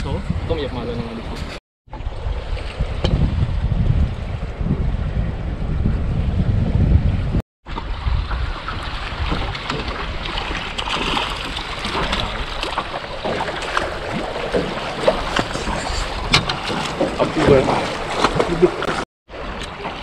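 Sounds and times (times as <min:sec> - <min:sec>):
wind on microphone: 0:00.0 - 0:19.0
water slapping boat hull: 0:07.6 - 0:20.0
fish splashing at surface: 0:07.7 - 0:20.0.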